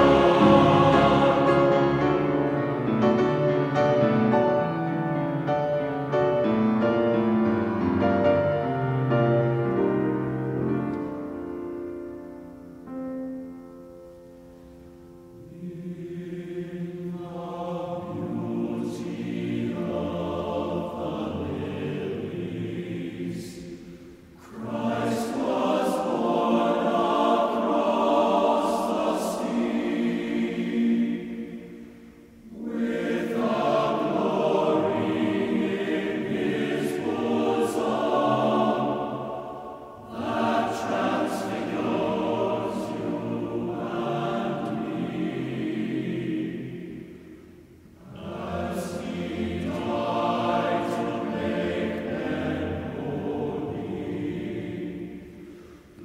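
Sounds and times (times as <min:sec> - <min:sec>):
choir singing: 0:00.0 - 0:11.4, 0:14.2 - 0:56.0.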